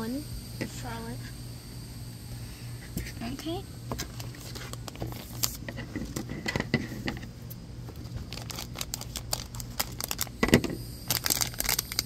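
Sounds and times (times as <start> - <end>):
crinkling plastic wrapper: 4.1 - 5.6, 8.0 - 12.0.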